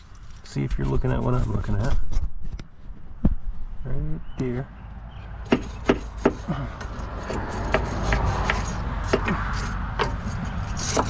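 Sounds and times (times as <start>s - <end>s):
wire brush scraping metal: 5.6s - 11.0s.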